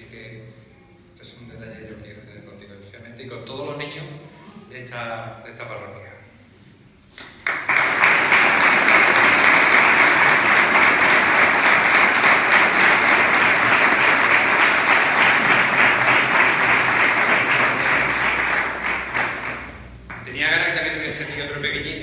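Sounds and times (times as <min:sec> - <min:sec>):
audience applauding: 0:07.4 - 0:20.9.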